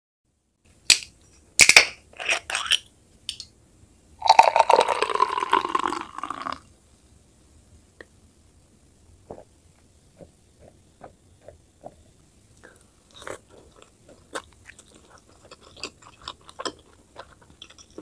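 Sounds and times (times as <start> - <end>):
liquid pouring into glass: 4.2 - 6.6.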